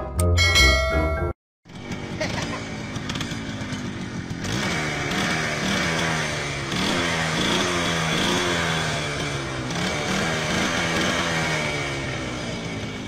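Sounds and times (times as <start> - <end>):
small motorcycle engine revving: 1.7 - 13.0.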